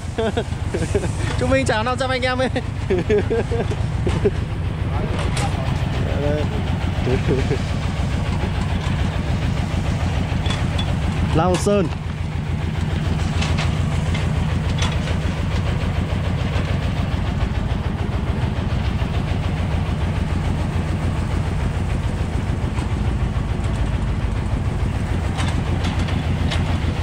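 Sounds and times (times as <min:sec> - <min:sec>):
diesel engine running: 0:00.0 - 0:27.0
metal clanks: 0:10.3 - 0:12.2, 0:12.8 - 0:15.7, 0:25.3 - 0:27.0.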